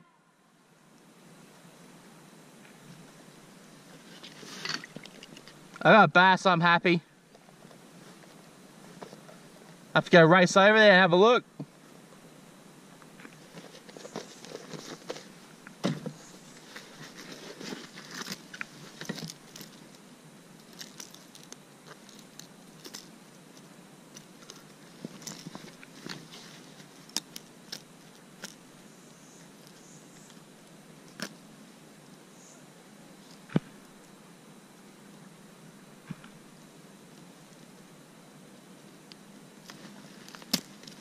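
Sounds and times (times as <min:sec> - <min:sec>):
light rustling: 0:03.8 - 0:05.8, 0:13.1 - 0:20.0
clicks of handled gear: 0:20.6 - 0:28.6.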